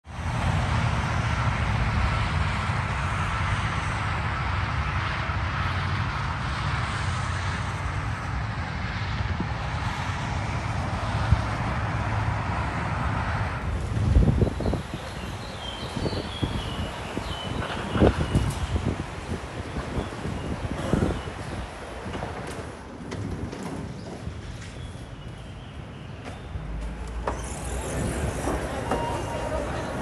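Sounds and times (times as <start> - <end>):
road traffic rumble: 0.0 - 30.0.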